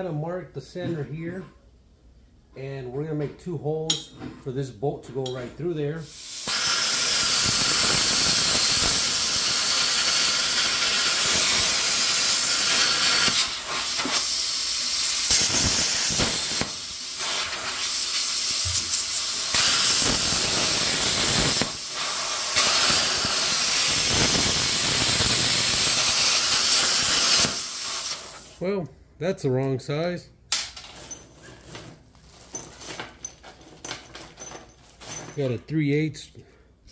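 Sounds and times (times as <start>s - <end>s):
plasma cutter torch hissing: 6.0s - 28.6s.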